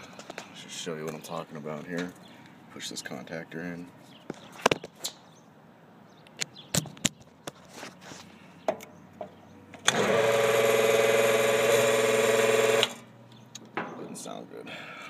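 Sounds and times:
compressor electrical hum-buzz: 9.7 - 13.8.

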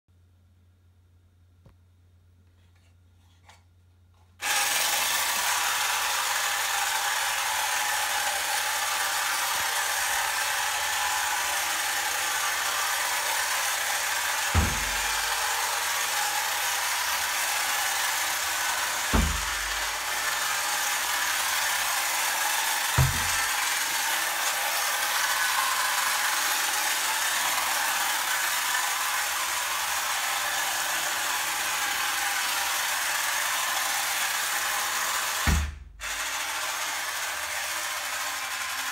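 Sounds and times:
toy car motor whirring rattle: 4.4 - 38.9
short thumps: 19.1 - 19.8, 23.0 - 23.5.

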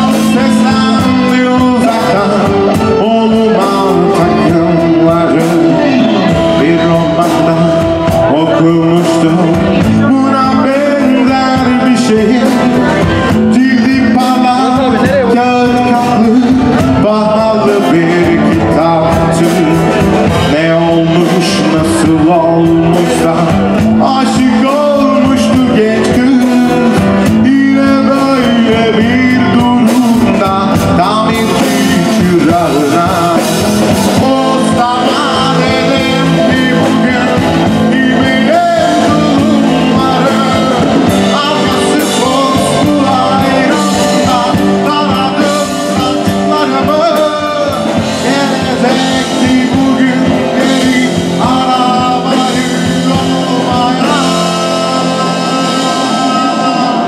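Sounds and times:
live band playing with vocals: 0.0 - 57.0.

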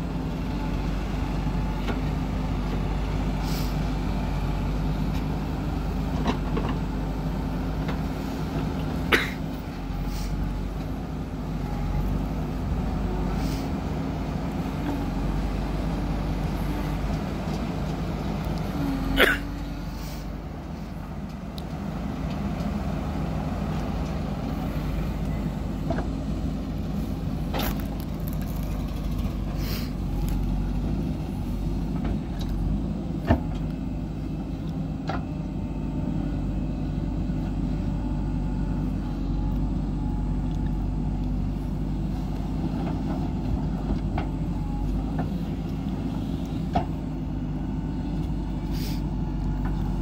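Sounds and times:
backhoe digging soil: 0.0 - 50.0
diesel engine under load: 0.0 - 50.0.

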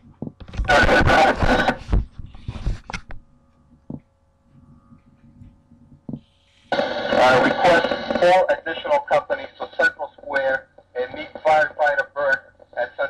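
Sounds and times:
radio static burst: 0.6 - 2.0, 6.7 - 13.0
radio hiss: 0.6 - 2.7, 6.2 - 13.0.

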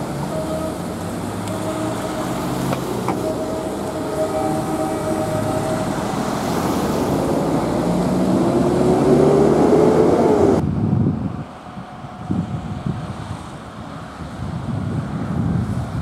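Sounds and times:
engine rising tone: 0.0 - 10.6
road traffic: 0.0 - 16.0
wind: 0.0 - 16.0.

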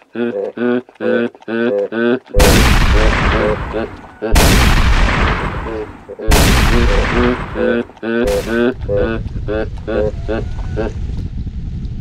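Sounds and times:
loud gunshots: 2.4 - 8.6.

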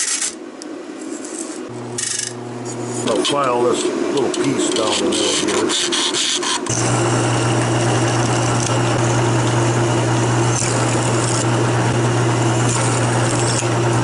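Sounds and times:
drill press motor humming: 1.7 - 3.2, 6.4 - 14.0
drill bit drilling sheet metal: 6.5 - 14.0.

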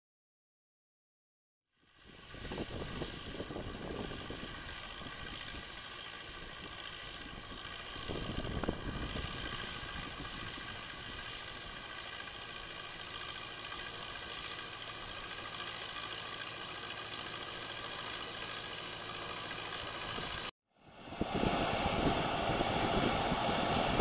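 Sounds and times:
distant tractor and baler running: 1.8 - 24.0
wind rumbling on microphone: 2.0 - 11.9, 20.1 - 24.0.

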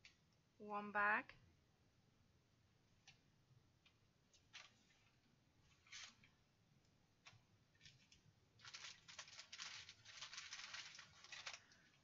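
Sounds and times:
plastic bags and paper rustling: 4.4 - 6.3, 7.7 - 12.0.

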